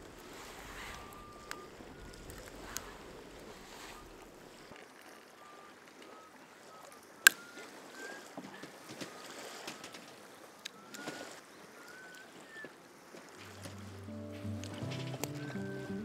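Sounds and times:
campfire crackling: 0.0 - 4.8, 13.4 - 16.0.

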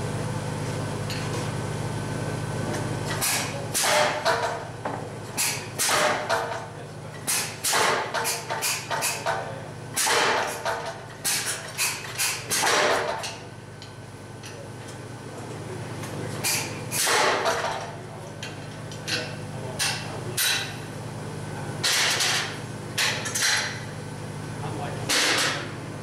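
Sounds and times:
power hammer striking metal: 3.2 - 4.6, 5.4 - 6.5, 7.3 - 9.2, 10.0 - 13.3, 16.5 - 17.8, 21.8 - 23.8, 25.1 - 25.7.

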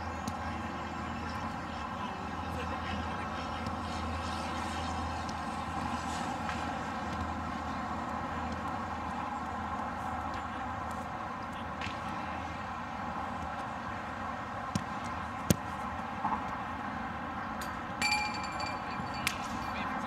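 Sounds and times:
short ringing tone: 18.0 - 19.3.

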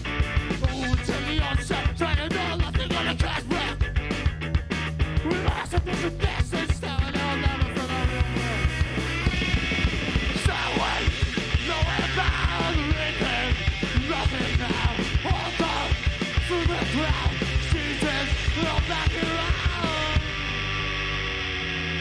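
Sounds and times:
fast drums: 0.0 - 20.8
bass guitar: 0.0 - 22.0
electric guitar: 0.0 - 22.0
singer yelling into microphone: 0.7 - 3.8, 5.2 - 8.6, 10.3 - 20.2.

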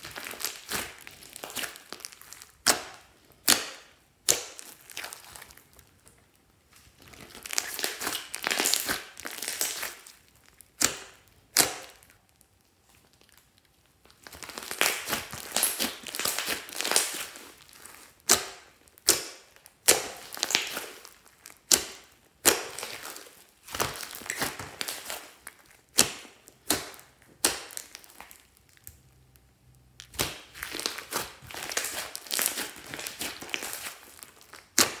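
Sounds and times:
squelchy slime stretching: 0.0 - 35.0
sharp pops of slime air: 25.9 - 28.0.

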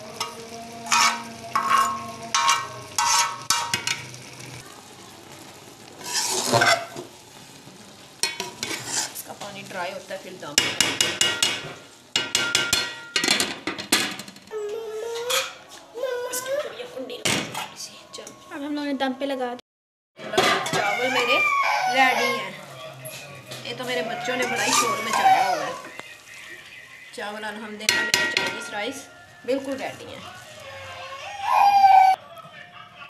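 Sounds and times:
metal spatula scraping pot: 0.1 - 4.2, 6.0 - 7.1, 8.2 - 9.5, 15.0 - 15.7, 20.2 - 25.8.

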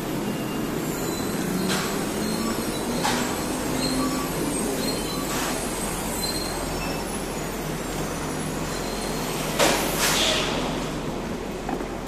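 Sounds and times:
train running on elevated track: 0.0 - 12.0.

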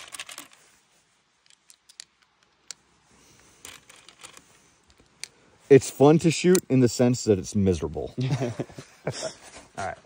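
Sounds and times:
small hard objects clicking: 0.0 - 0.6, 1.4 - 2.8
small objects rustling: 0.0 - 5.3.

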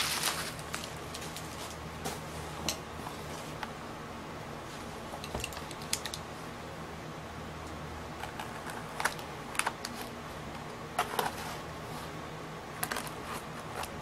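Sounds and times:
plastic film crackling: 0.0 - 1.8.

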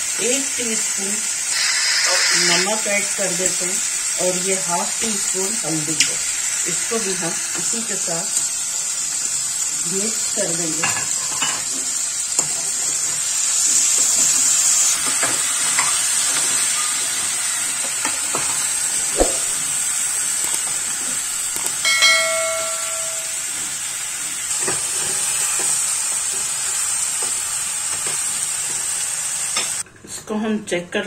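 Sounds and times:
food frying in oil: 0.0 - 29.9
short ringing chime: 21.8 - 23.6.

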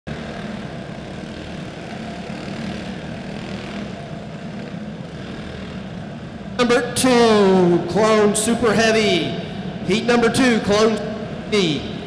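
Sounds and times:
kart engines running: 0.1 - 8.7.

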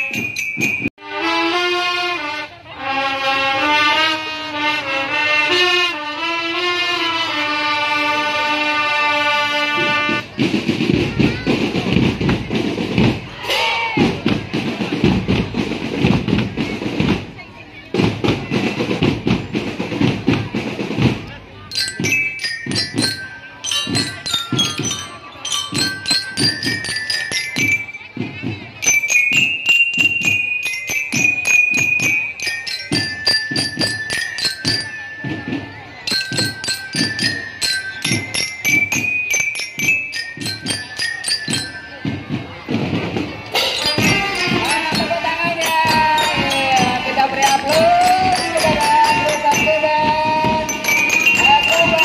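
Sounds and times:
bell lyres playing melody: 0.0 - 1.0, 20.9 - 52.0
steady drum beat: 9.7 - 52.0.

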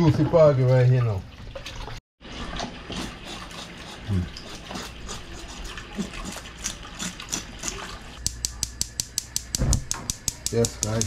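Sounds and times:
ticking music beat: 8.3 - 11.0.

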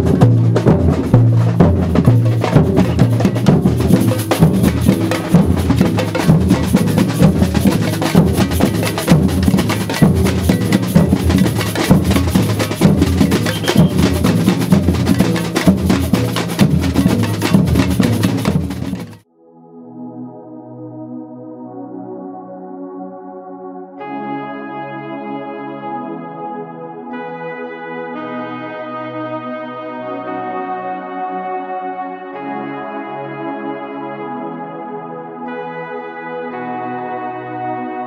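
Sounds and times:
bass drums beaten with mallets: 0.0 - 19.2
sharp higher drum strikes: 0.0 - 19.2.

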